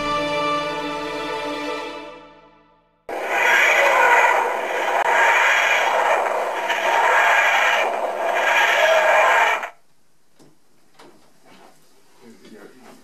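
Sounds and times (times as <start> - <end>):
background music: 0.0 - 3.0
faint taps: 10.3 - 11.6.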